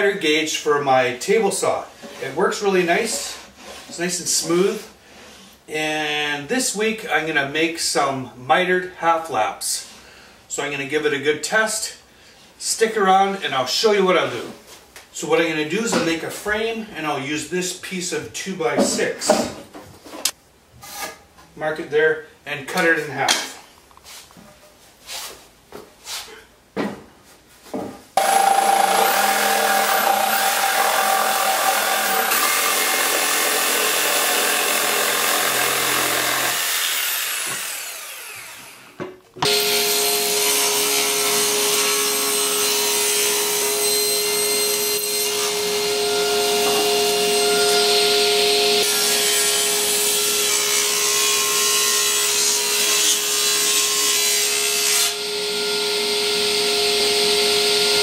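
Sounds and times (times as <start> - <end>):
table saw cutting wood: 28.2 - 58.0.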